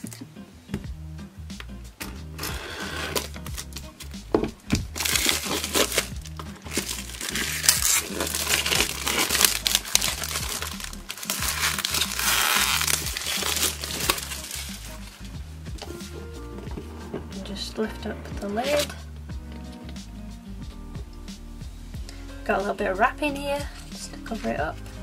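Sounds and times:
soft background music: 0:00.0 - 0:25.0
plastic wrap crinkling: 0:04.8 - 0:15.2.

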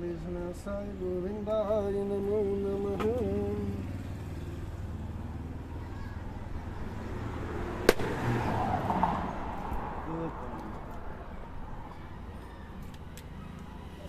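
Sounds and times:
coconut cracking on pavement: 0:07.8 - 0:08.4.

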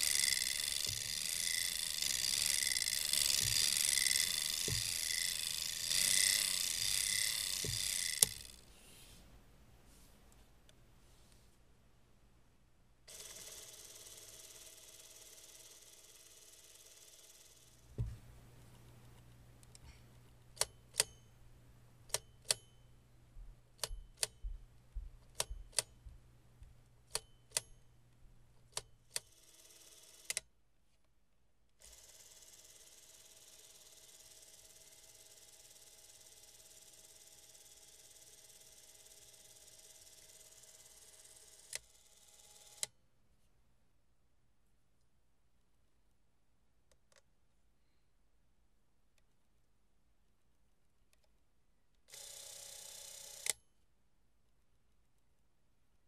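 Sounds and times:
movie camera mechanical clicks: 0:00.0 - 0:08.6
clockwork camera winding whir: 0:00.0 - 0:08.7, 0:13.1 - 0:17.9, 0:28.7 - 0:30.5, 0:31.8 - 0:43.0, 0:52.1 - 0:53.6.

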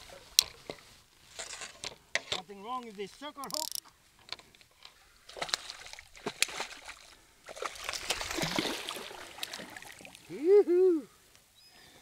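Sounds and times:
sharp clicks and knocks: 0:01.8 - 0:04.5
water sloshing and splashing: 0:05.3 - 0:10.3.

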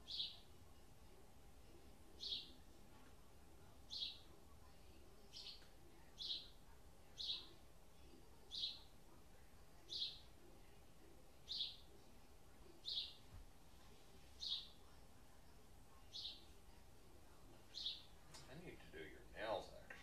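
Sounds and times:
bird chirping: 0:00.0 - 0:00.5, 0:02.2 - 0:02.6, 0:03.9 - 0:04.4, 0:05.2 - 0:07.6, 0:08.4 - 0:08.9, 0:09.8 - 0:10.3, 0:11.4 - 0:11.9, 0:12.7 - 0:13.2, 0:14.4 - 0:14.8, 0:16.0 - 0:16.5, 0:17.6 - 0:18.2.

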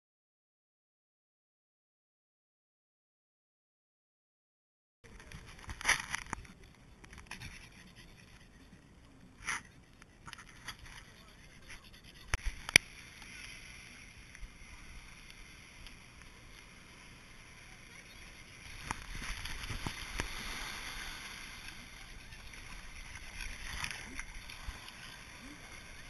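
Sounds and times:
small waves sloshing in shallows: 0:12.5 - 0:26.0.

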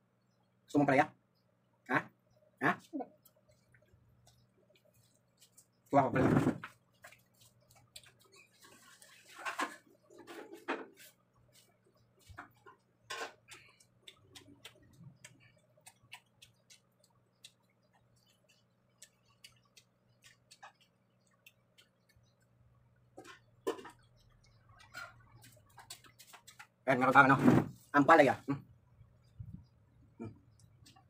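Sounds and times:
mouth clicks and smacks chewing: 0:03.1 - 0:05.9, 0:07.0 - 0:08.6, 0:13.4 - 0:22.7.

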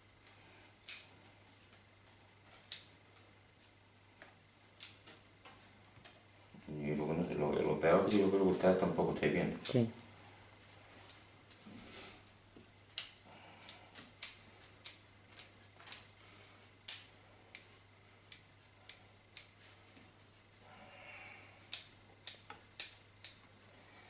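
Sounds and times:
scissors snipping roots: 0:07.3 - 0:08.6.

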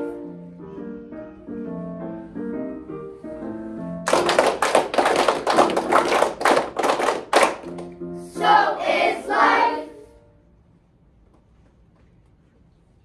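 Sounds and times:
backing music: 0:01.7 - 0:10.3
children clapping in time: 0:04.1 - 0:08.0
children singing: 0:08.3 - 0:10.1.

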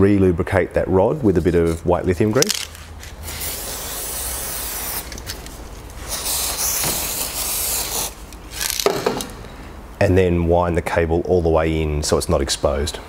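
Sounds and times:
aerosol can spraying: 0:03.1 - 0:05.3, 0:06.0 - 0:08.2.

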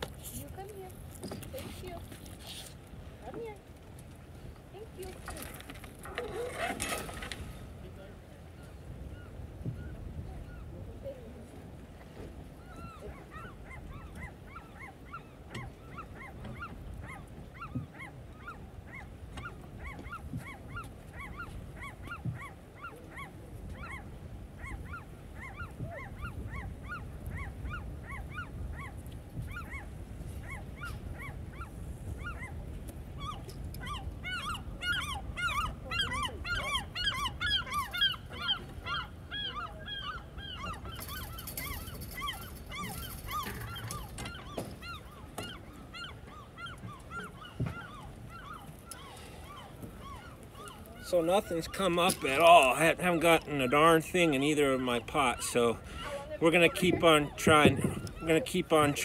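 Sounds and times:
gulls calling: 0:12.2 - 0:59.0.

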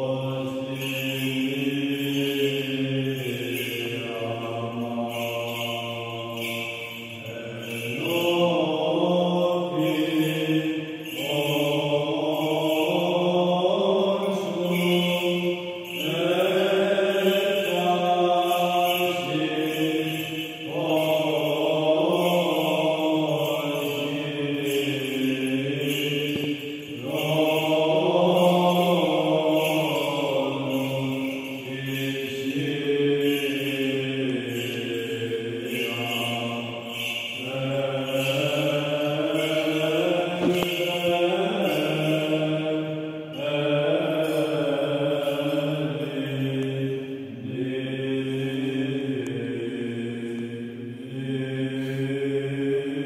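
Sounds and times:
person chanting: 0:00.0 - 0:53.0.

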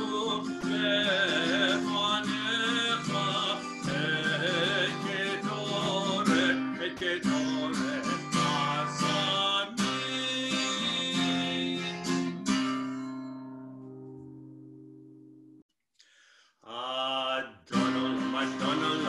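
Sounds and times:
acoustic guitar strumming: 0:00.0 - 0:15.6, 0:17.7 - 0:19.0.

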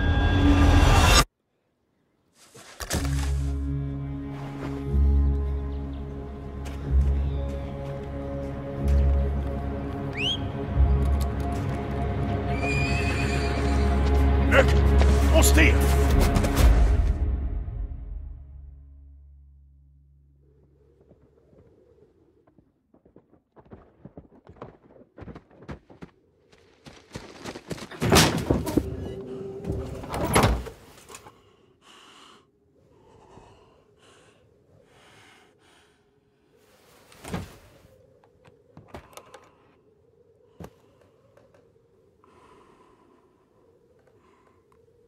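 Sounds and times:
rustles: 0:36.6 - 0:39.7.

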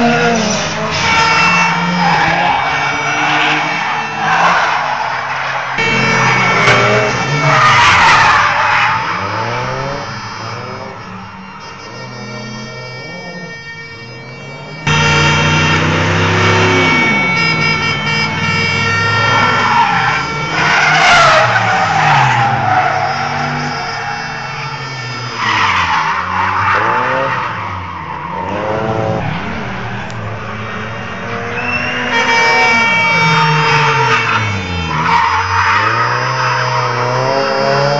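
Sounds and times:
car engines revving: 0:00.0 - 0:37.9
loud tyre screech: 0:00.0 - 0:37.9.

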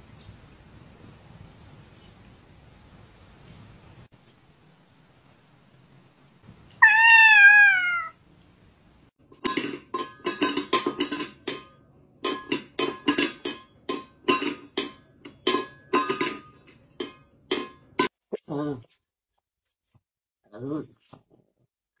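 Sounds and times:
cat meowing: 0:06.8 - 0:08.2.

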